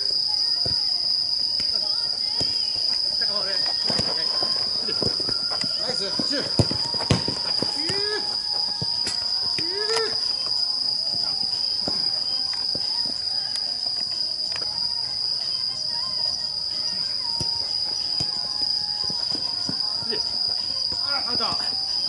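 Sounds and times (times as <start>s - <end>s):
crickets chirring: 0.0s - 22.0s.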